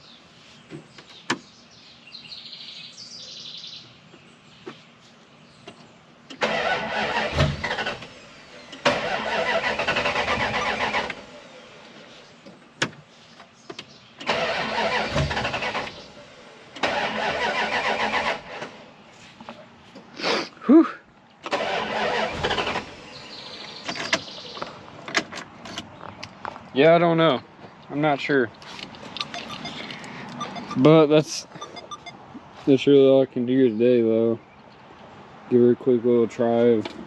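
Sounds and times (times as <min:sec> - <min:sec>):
starter cranking engine: 0:06.3 - 0:11.3, 0:14.2 - 0:16.1, 0:16.8 - 0:18.8, 0:21.4 - 0:23.2
starter clicks: 0:28.6 - 0:30.9.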